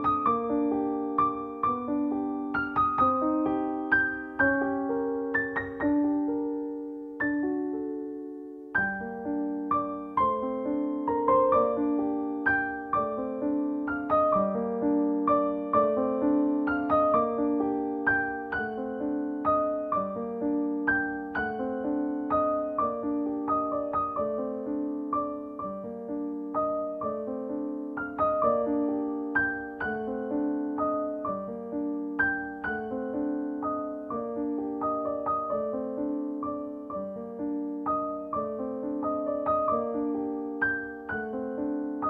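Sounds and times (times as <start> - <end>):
solo piano melody: 0.0 - 42.0.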